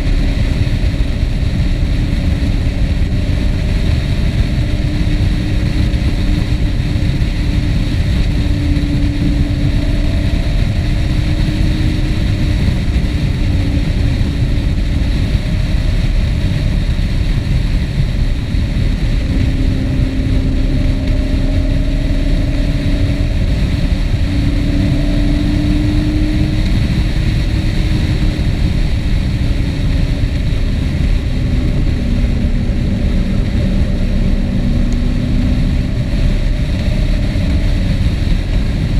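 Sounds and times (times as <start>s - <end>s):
vehicle engine running: 0.0s - 38.9s
wind noise: 0.0s - 38.9s.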